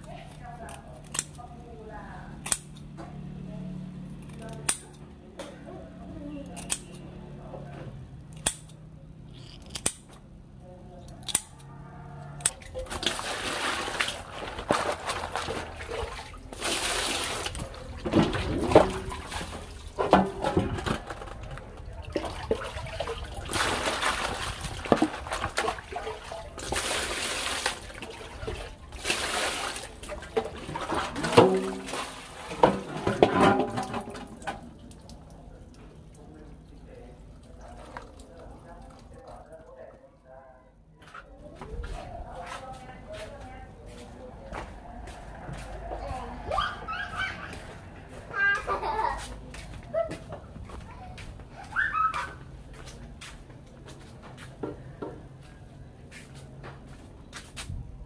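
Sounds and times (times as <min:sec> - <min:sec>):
water sloshing and splashing: 0:12.3 - 0:40.1.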